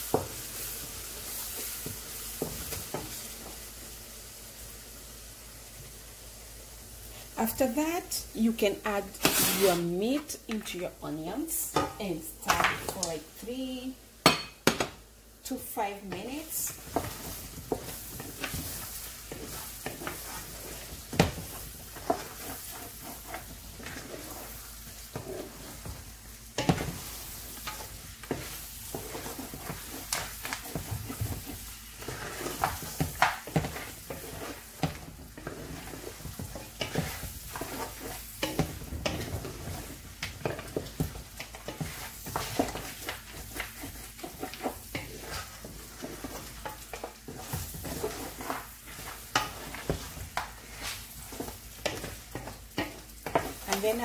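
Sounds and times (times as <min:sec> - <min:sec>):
meat and onions sizzling in oil: 0:00.0 - 0:10.4, 0:11.0 - 0:54.0
wooden spoon scraping a pot: 0:08.9 - 0:10.6, 0:15.8 - 0:54.0.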